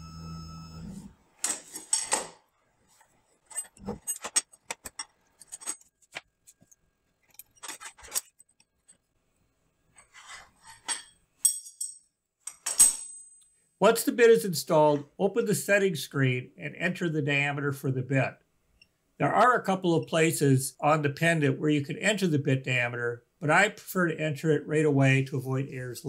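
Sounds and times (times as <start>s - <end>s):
metallic clinks and scrapes of wrenches: 3.3s - 6.0s, 6.6s - 9.0s, 10.0s - 13.5s.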